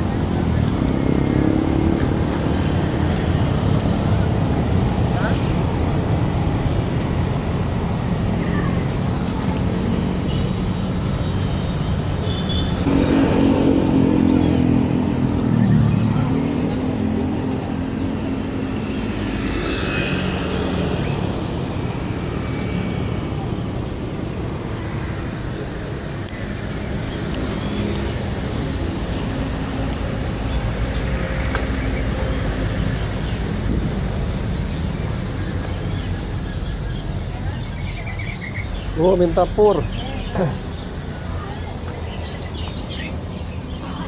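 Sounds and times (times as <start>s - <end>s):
traffic rumble: 0.0s - 44.0s
vehicle engine passing: 12.8s - 23.4s.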